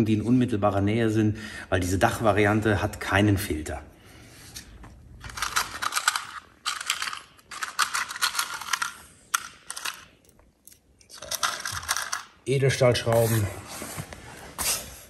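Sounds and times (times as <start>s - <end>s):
screws rattling in plastic box: 5.2s - 10.2s, 11.1s - 12.3s.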